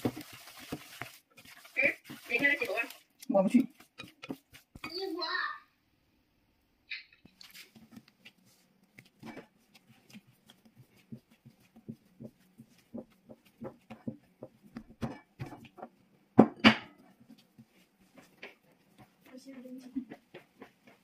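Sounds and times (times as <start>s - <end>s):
dough being kneaded by hand: 0.0s - 5.3s, 7.2s - 21.0s
soft knocks and squishes: 7.3s - 21.0s.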